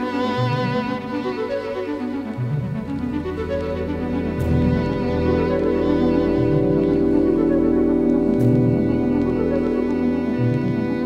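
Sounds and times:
background music with sustained notes: 0.0s - 11.0s.

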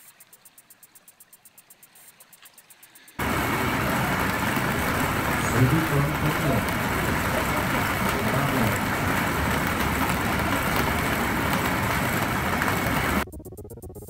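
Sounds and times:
arcade machine running: 3.2s - 13.2s.

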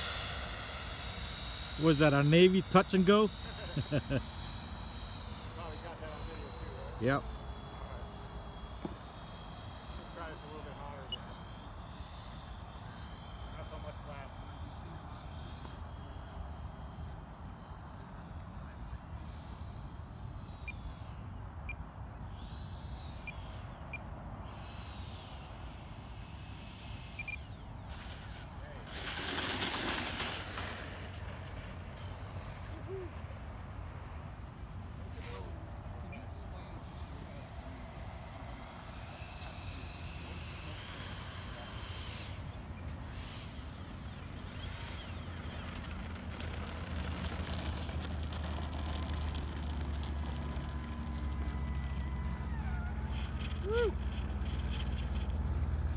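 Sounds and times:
high pulsing buzz: 0.0s - 55.9s
model jet fans whining: 0.0s - 55.9s
bird chirps: 27.1s - 28.0s.

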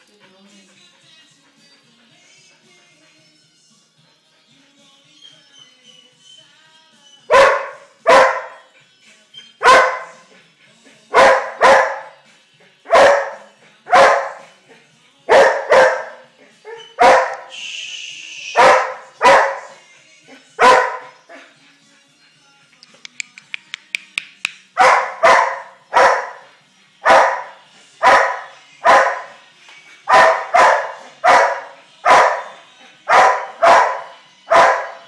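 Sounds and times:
dog barking loudly: 7.3s - 8.6s, 9.6s - 10.2s, 11.2s - 12.1s, 12.9s - 14.4s, 15.3s - 16.2s, 16.9s - 17.5s, 18.6s - 19.7s, 20.6s - 21.2s, 24.8s - 26.4s, 27.1s - 29.3s, 30.1s - 32.5s, 33.1s - 35.0s.

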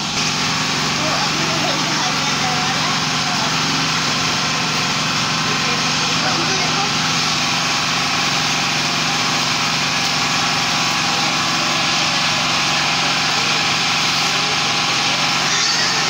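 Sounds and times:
engine droning: 0.0s - 16.0s.

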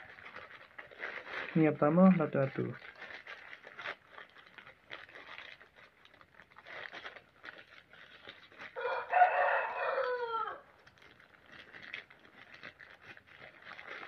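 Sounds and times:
packaging rustling: 0.0s - 14.0s
rooster crowing: 8.8s - 10.8s.

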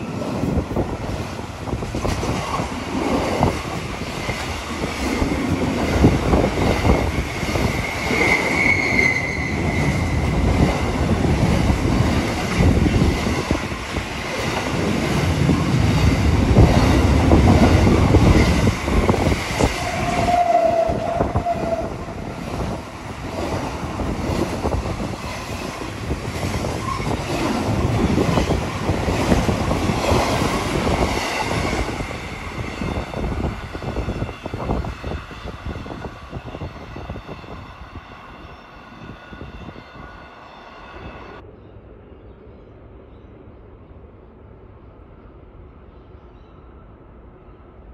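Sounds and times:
wheel squeal: 7.7s - 10.2s.

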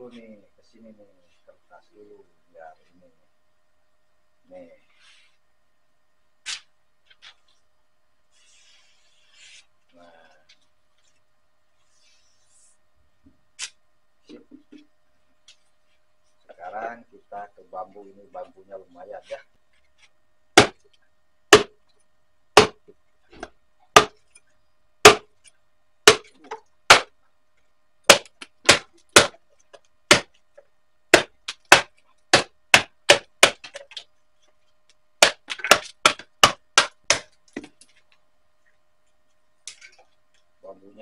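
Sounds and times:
chopper chopping bamboo: 20.6s - 20.8s, 21.5s - 21.8s, 22.6s - 22.8s, 23.9s - 24.2s, 25.0s - 25.3s, 26.0s - 27.1s, 28.1s - 29.4s, 30.1s - 30.3s, 31.1s - 33.9s, 35.2s - 37.3s.

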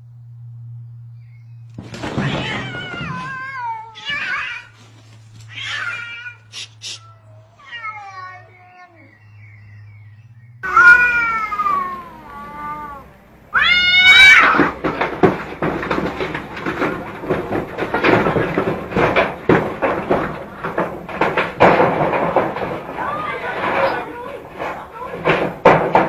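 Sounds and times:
scrabbling scuffle: 1.8s - 6.3s, 10.6s - 26.0s
cats yowling and screeching: 2.0s - 4.8s, 5.4s - 9.8s, 10.6s - 14.9s.

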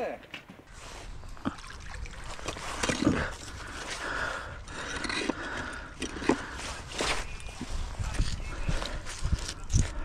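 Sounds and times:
rope rustling: 6.3s - 10.0s.

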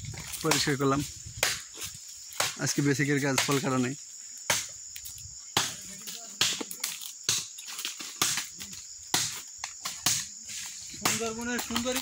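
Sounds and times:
insects buzzing: 0.0s - 12.0s
machete chopping tree trunk: 0.4s - 2.6s, 3.4s - 3.7s, 4.5s - 4.8s, 5.5s - 10.4s, 11.0s - 12.0s.

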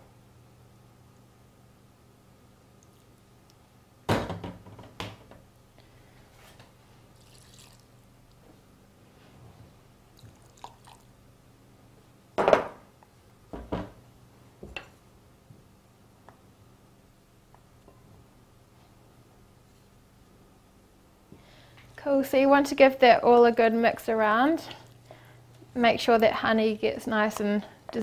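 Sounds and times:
liquid dribbling: 7.1s - 8.0s, 10.2s - 11.1s.

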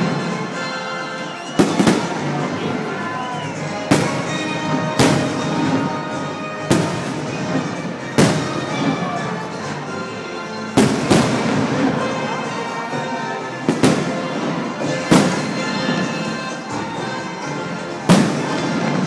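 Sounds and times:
fireworks crackle: 0.0s - 9.5s, 10.8s - 12.4s, 13.6s - 16.9s, 18.0s - 19.0s
music: 0.0s - 19.0s
fireworks booming: 1.5s - 2.8s, 3.5s - 9.3s, 10.8s - 12.2s, 13.6s - 16.5s, 18.0s - 19.0s.

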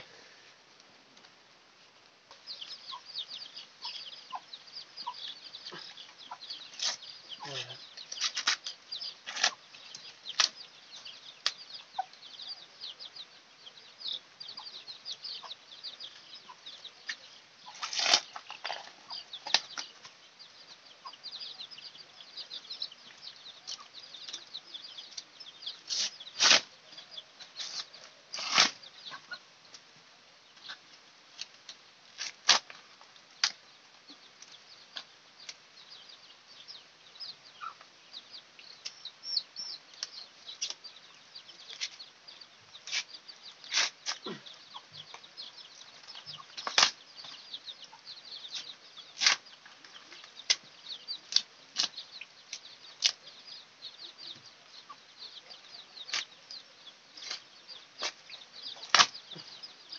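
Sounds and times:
corn husks ripping: 8.2s - 9.6s, 17.7s - 19.8s, 25.9s - 26.7s, 27.6s - 28.8s, 32.2s - 32.8s, 43.7s - 44.4s, 46.6s - 47.0s, 49.2s - 49.4s, 57.2s - 57.4s, 58.8s - 59.2s.

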